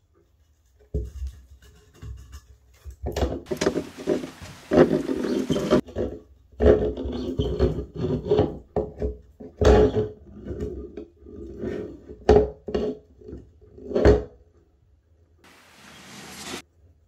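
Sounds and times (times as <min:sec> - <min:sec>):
pipe fittings knocking and scraping: 0:00.1 - 0:10.7.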